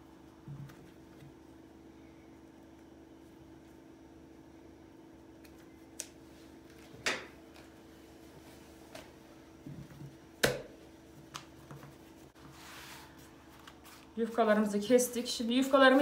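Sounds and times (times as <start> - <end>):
faint steady hum: 0.0 - 16.0
pastry sheet rustling: 11.6 - 16.0.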